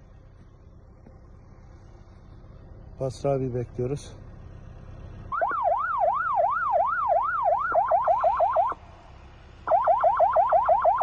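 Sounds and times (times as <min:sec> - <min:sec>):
electronic siren whooping: 0:05.3 - 0:08.8, 0:09.7 - 0:11.0.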